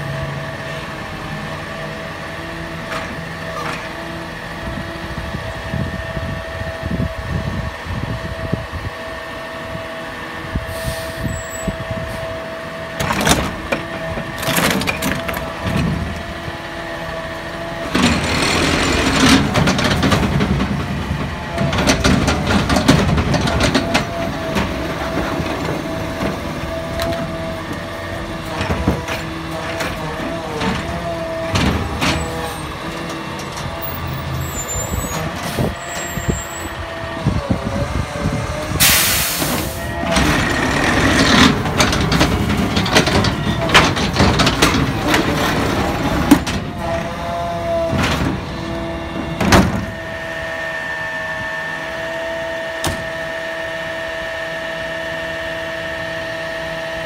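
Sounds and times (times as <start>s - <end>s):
garbage truck engine whine: 0.0s - 57.0s
loud air hiss: 10.7s - 11.4s, 38.8s - 39.8s
arm and cart knocking and clattering: 13.0s - 16.2s, 17.8s - 27.8s, 28.4s - 34.1s, 40.0s - 47.2s.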